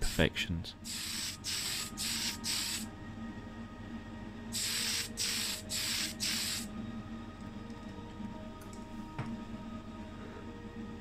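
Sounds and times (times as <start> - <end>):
aerosol can spraying: 0.9 - 2.9, 4.6 - 6.7.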